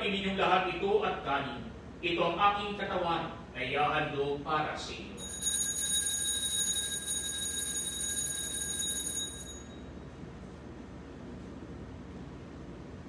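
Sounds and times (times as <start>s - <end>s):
high shimmering bell ring: 5.2s - 10.0s.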